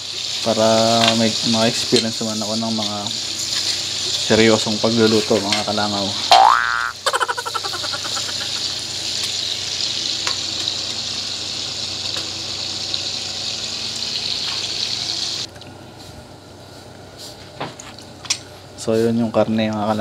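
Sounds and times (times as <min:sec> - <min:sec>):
pork sizzling in oil: 0:00.0 - 0:15.5.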